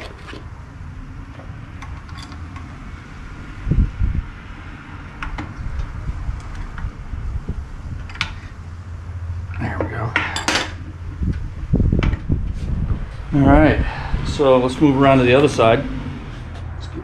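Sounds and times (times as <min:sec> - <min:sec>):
metal tools clinking: 0:01.9 - 0:02.4, 0:10.2 - 0:10.8.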